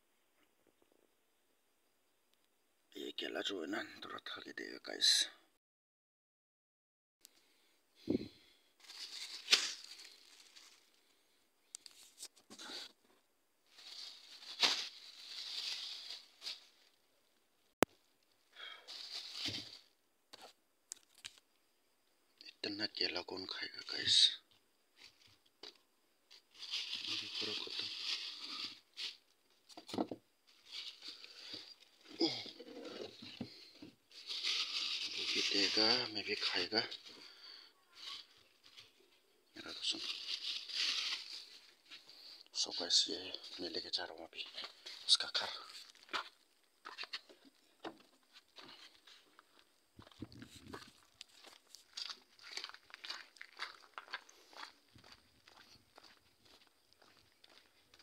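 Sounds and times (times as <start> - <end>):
rustling and crinkling: 8.1 - 21.6, 24.0 - 58.0
bananas set down with thump: 29.7 - 30.2.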